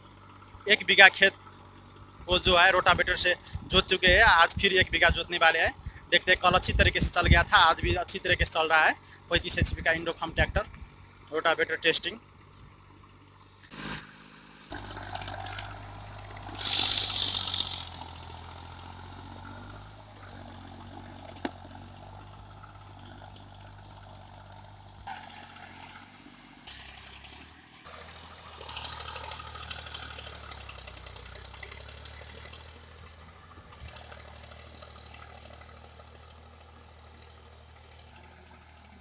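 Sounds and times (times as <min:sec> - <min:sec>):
diesel tractor engine running: 0:00.0 - 0:39.0
loud burst of noise: 0:16.6 - 0:17.9.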